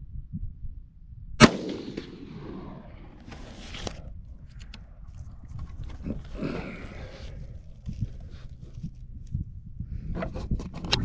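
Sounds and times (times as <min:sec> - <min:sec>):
rifle shot with echo: 0:01.4 - 0:03.2
soft clicks and rustles: 0:03.2 - 0:06.4.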